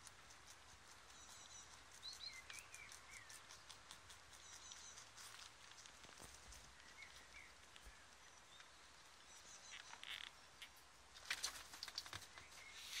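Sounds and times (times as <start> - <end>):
rabbits chewing stalks: 0.0 - 13.0.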